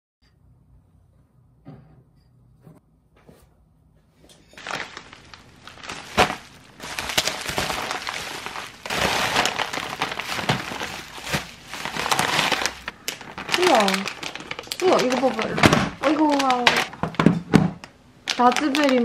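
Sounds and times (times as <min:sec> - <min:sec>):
bubble wrap crinkling: 0:04.6 - 0:19.0.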